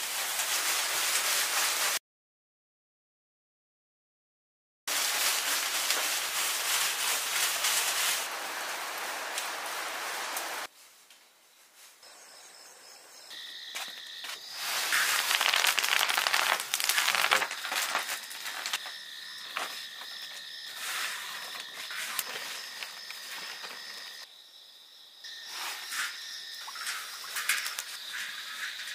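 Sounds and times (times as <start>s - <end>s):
tea leaves rustling on bamboo tray: 0.0s - 2.0s, 4.9s - 11.1s, 14.4s - 20.0s
night insects trilling: 12.0s - 28.9s.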